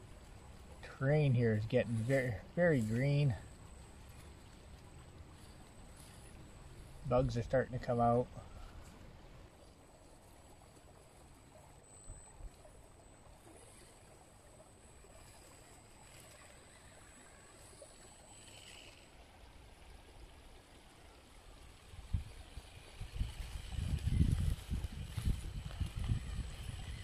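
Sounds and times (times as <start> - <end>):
outdoor background hiss: 0.0 - 27.0
high-pitched steady tone: 10.4 - 19.0.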